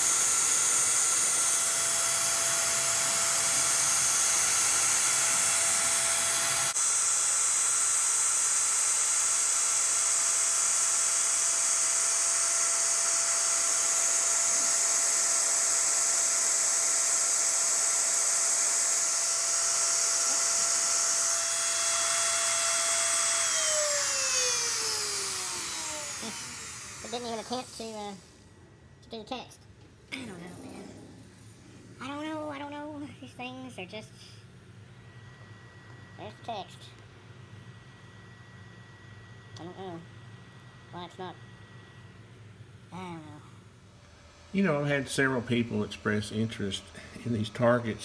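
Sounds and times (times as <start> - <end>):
bit cutting wood: 0.0 - 28.3
router spindle high whine: 0.0 - 28.4, 35.0 - 48.0.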